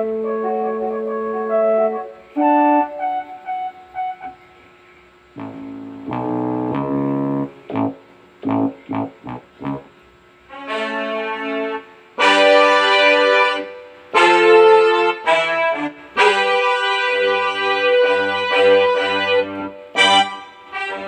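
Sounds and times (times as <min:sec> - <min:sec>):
keyboard playing brass-like chords: 0:00.0 - 0:21.0
low bass note: 0:05.4 - 0:09.9.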